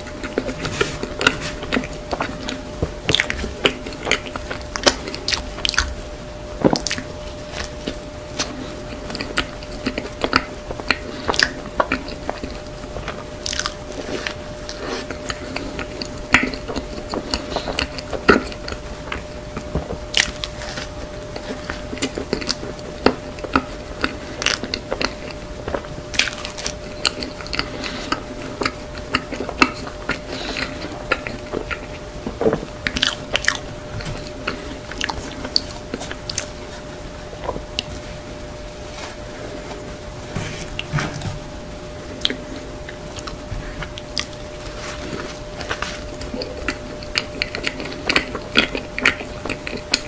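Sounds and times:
crunchy pastry chewing: 0.0 - 50.0
faint steady hum: 0.0 - 50.0.

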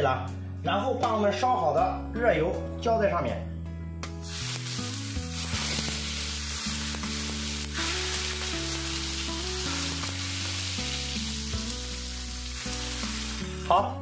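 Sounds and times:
background music: 0.0 - 14.0
hot oil sizzling: 4.2 - 14.0.

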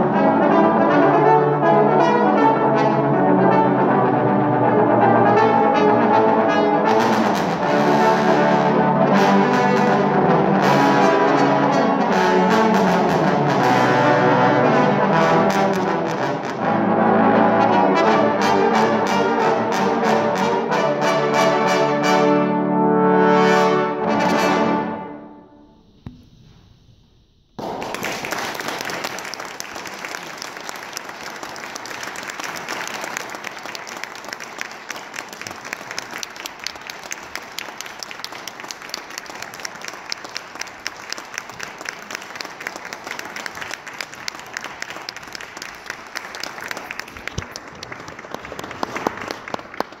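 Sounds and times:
audience applauding: 27.6 - 50.0.

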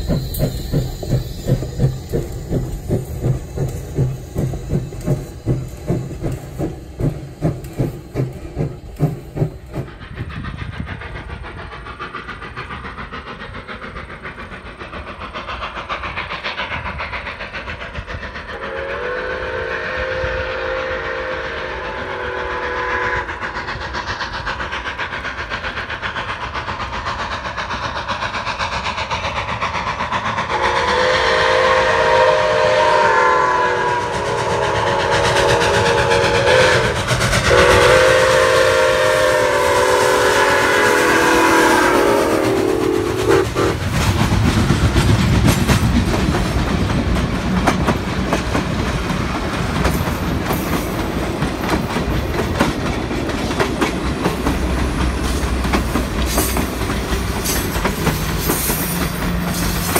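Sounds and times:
steam locomotive approaching: 0.0 - 59.9
train wheels clacking on rail joints: 0.0 - 59.9
steam whistle blasts: 18.6 - 23.4, 30.5 - 43.8.

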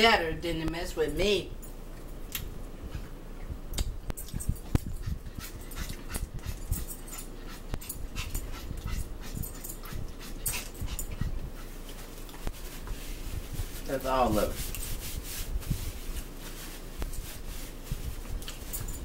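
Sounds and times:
wet chewing and lip-smacking: 1.9 - 13.0, 18.2 - 18.8.

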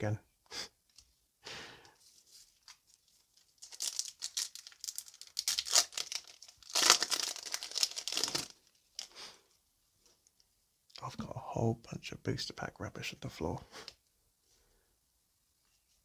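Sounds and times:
foil wrapper crinkling and tearing: 2.6 - 9.2.

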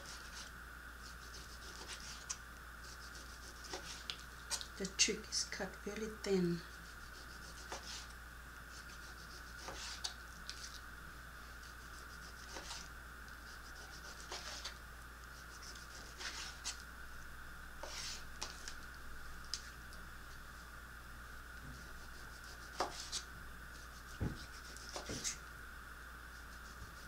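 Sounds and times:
knife slicing meat on board: 8.9 - 10.1, 12.3 - 12.8, 22.5 - 23.2, 24.1 - 25.4.

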